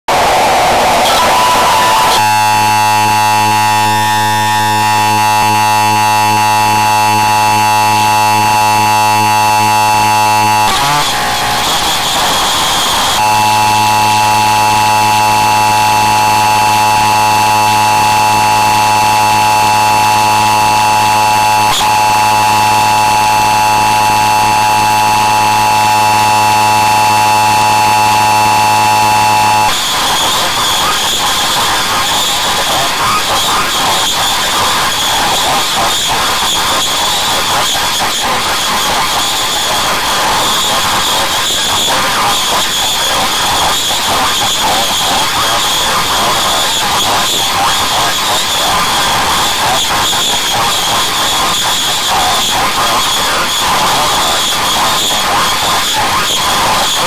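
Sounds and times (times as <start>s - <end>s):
harsh noise: 0.0s - 36.4s
low buzz: 0.1s - 29.9s
distorted alarm tone: 0.1s - 52.7s.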